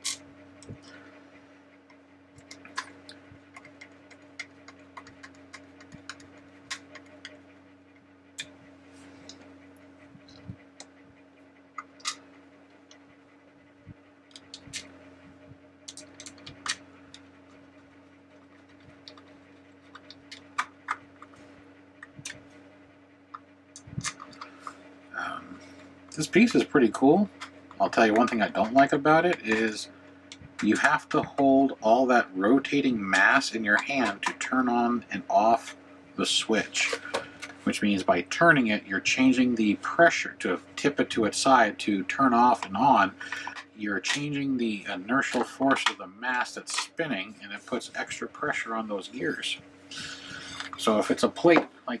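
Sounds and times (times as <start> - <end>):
steady low hum: 0.0 - 52.0
plastic parts clicking: 15.9 - 16.8.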